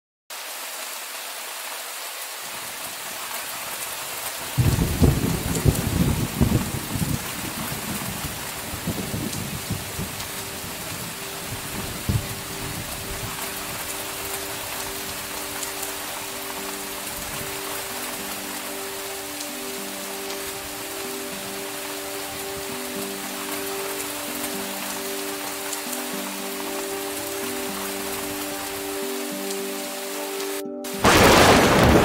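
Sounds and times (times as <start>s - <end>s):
heavy rain: 0.3s - 32.0s
soft music: 3.2s - 32.0s
thunder rumbling: 4.5s - 14.7s, 31.0s - 32.0s.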